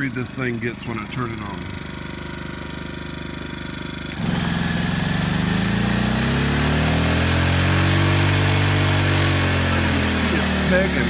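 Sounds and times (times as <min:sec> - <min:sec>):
generator engine running: 0:00.0 - 0:11.0.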